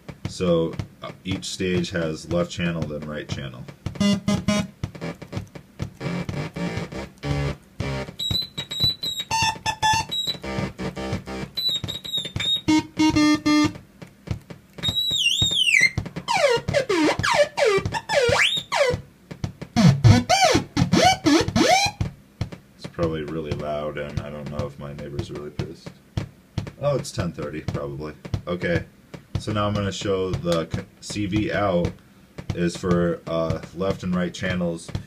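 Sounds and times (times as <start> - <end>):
stuttering electronic tones: 4.0 - 13.8, 14.8 - 19.0, 19.8 - 22.0.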